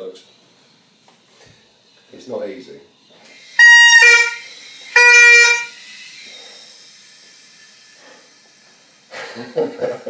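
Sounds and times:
bagpipe chanter note: 0:03.6 - 0:05.8.

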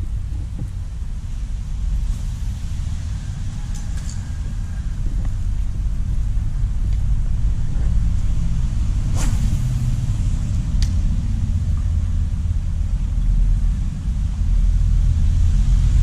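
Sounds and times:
low rumble: 0:00.0 - 0:16.0
fishing rod swishing: 0:09.1 - 0:09.9.

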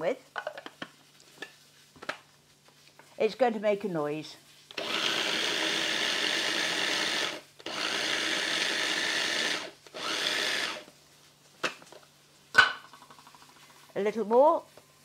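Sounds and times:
food processor motor grinding: 0:04.7 - 0:10.9.

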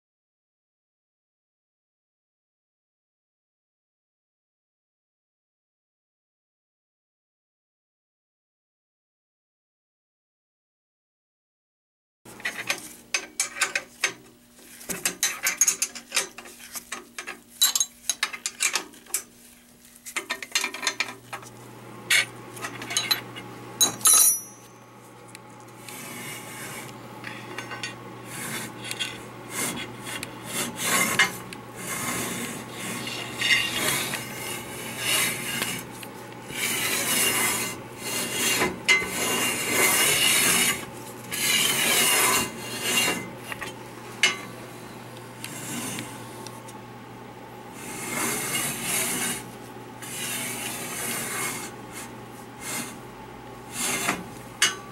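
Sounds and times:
metal-on-metal scraping: 0:12.4 - 0:19.3, 0:20.0 - 0:21.4, 0:22.1 - 0:24.7, 0:25.7 - 0:46.5, 0:47.7 - 0:53.0, 0:53.7 - 0:54.9
steel parts clinking: 0:15.0 - 0:19.3, 0:22.1 - 0:24.8
lathe motor hum: 0:24.9 - 0:54.6.

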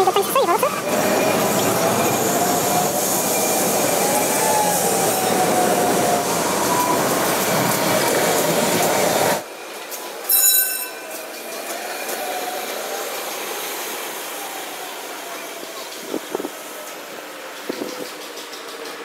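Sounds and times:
tram rumbling on rails: 0:00.0 - 0:19.0
tram wheels squealing: 0:00.0 - 0:19.0
bright ringing bell note: 0:10.3 - 0:11.2.

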